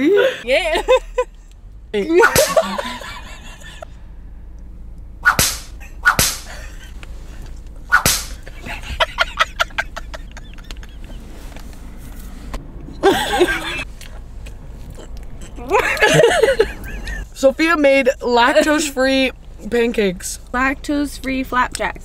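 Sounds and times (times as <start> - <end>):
women laughing hard: 2.2 - 3.8, 8.4 - 11.3, 13.0 - 13.8, 15.7 - 17.2.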